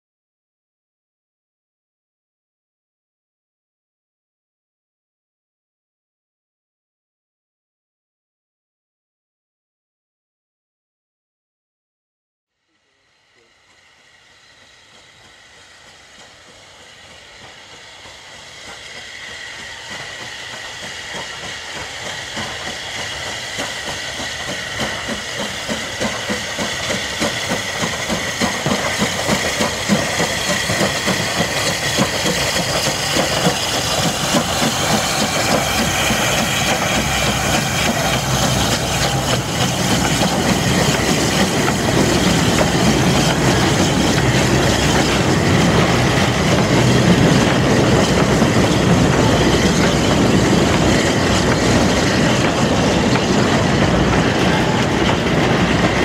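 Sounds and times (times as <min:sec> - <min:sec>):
steam hissing: 0:12.7 - 0:56.0
steam locomotive chuffing: 0:12.7 - 0:56.0
wagons rattling on rails: 0:15.2 - 0:56.0.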